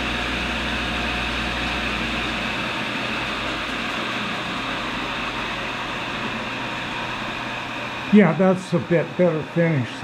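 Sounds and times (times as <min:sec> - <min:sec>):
grinding wheel hissing: 0:00.0 - 0:10.0
motor hum: 0:00.0 - 0:10.0.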